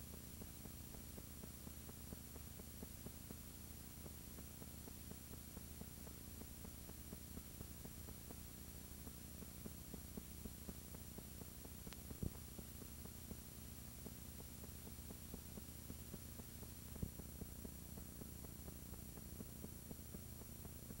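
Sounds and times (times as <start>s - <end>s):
tape playback hum and hiss: 0.0s - 21.0s
faint crackling ticks: 10.9s - 12.5s.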